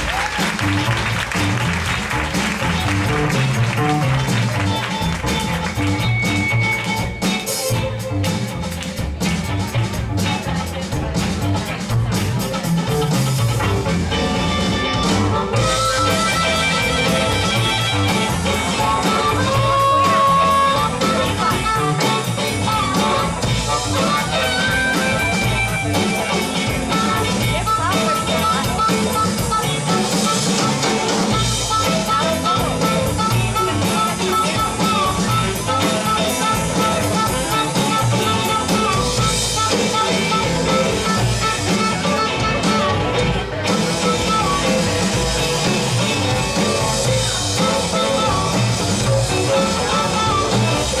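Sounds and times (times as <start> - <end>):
band playing funk: 0.0 - 51.0
harmonica melody: 13.5 - 51.0
saxophone melody: 13.6 - 51.0.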